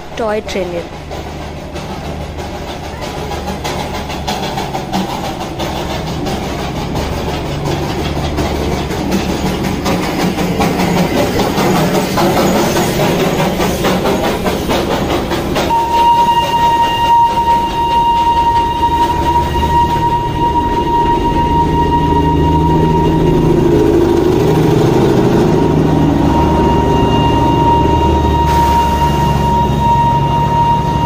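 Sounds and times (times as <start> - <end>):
running gear clanking: 0.0 - 15.8
steam locomotive chuffing: 0.0 - 31.0
train coaches rolling past: 0.0 - 31.0
high steam whistle: 15.4 - 31.0.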